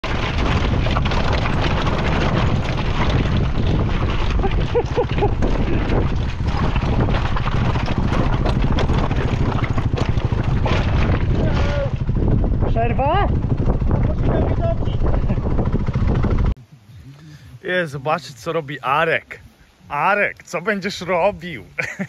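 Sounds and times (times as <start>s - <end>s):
motorcycle engine running: 0.0s - 16.6s
wind noise on microphone: 0.0s - 16.9s.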